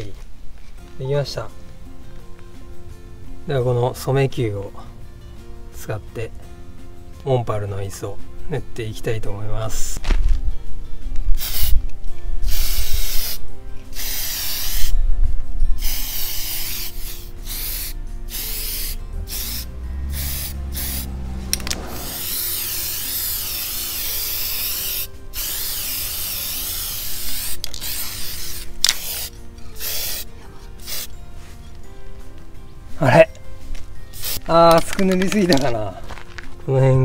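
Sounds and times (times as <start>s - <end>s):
aerosol spray can hissing: 11.4s - 11.8s, 12.4s - 15.0s, 15.8s - 31.2s, 34.1s - 34.5s.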